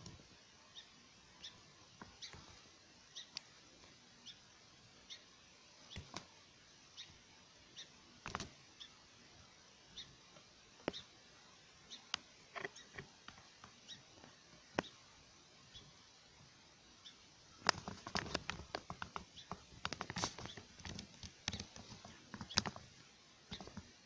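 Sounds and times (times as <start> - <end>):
faint high chirp: 0.7 - 2.4
light clicks and knocks: 17.6 - 24.0.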